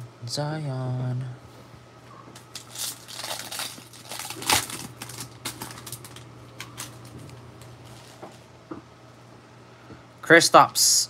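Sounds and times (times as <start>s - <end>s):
foil wrapper crinkling and tearing: 2.4s - 8.2s.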